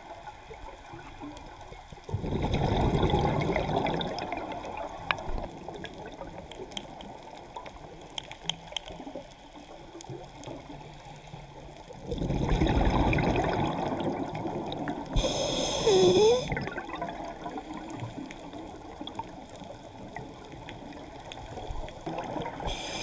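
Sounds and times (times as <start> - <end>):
underwater exhaled bubbles gurgling: 0.0 - 23.0
faint clicks: 6.5 - 10.7.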